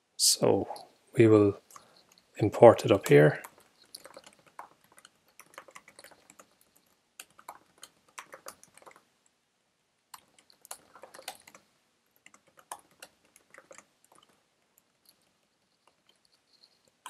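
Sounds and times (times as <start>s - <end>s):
keyboard typing: 2.9s - 9.1s, 10.1s - 17.0s.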